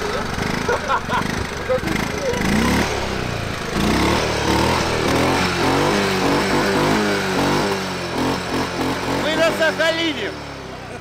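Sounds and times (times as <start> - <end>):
vehicle engine revving: 0.0 - 11.0.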